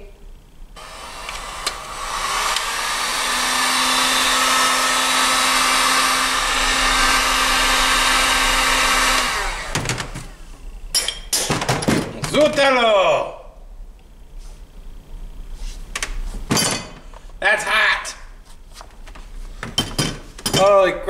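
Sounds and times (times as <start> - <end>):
heat gun blowing with motor hum: 0.8 - 10.5.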